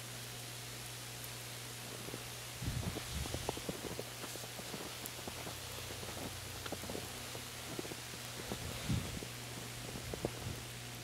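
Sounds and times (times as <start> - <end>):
steady low hum: 0.0 - 11.0
footsteps crunching in snow: 1.9 - 10.7.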